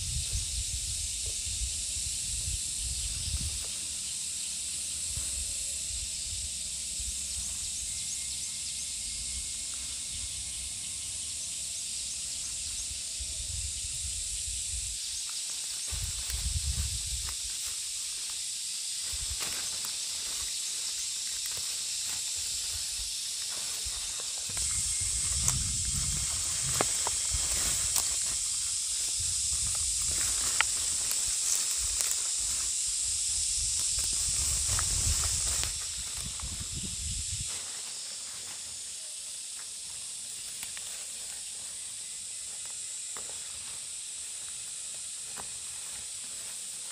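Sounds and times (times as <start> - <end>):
high outdoor hiss: 0.0 - 46.9.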